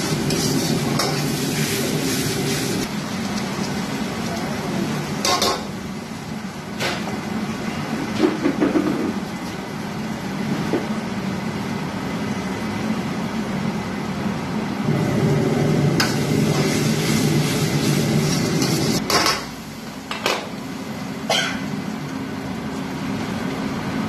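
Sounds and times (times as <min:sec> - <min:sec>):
gas burner roaring: 0:00.0 - 0:24.0.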